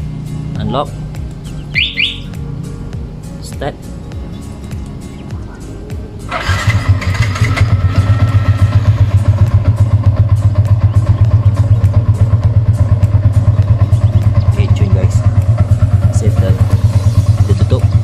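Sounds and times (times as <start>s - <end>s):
motorcycle engine idling: 0.0s - 18.0s
engine starter turning over: 6.3s - 9.5s.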